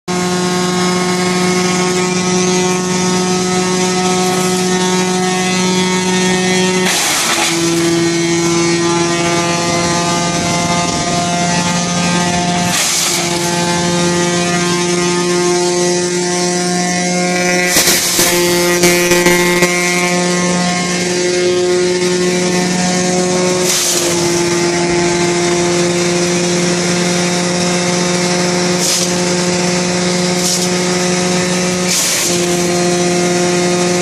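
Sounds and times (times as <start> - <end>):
wood chipper running: 0.1 - 34.0
branches being chipped: 1.2 - 8.6, 12.7 - 14.0, 22.3 - 34.0.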